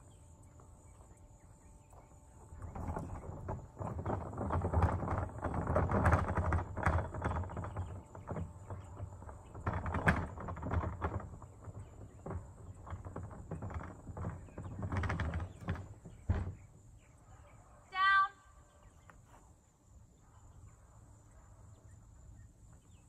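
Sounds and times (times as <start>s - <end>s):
trash bin wheels rolling: 0.0s - 17.1s.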